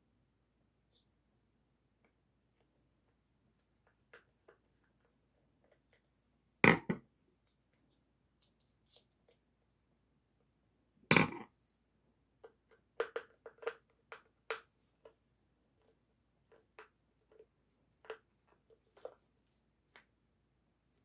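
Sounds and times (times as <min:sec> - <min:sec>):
plastic clicks and knocks: 0:06.6 - 0:07.1, 0:12.4 - 0:14.7.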